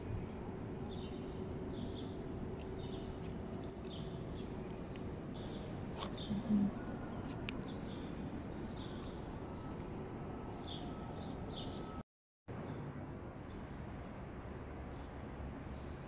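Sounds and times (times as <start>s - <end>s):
steady background hum: 0.0s - 12.0s
small birds chirping: 0.2s - 11.9s.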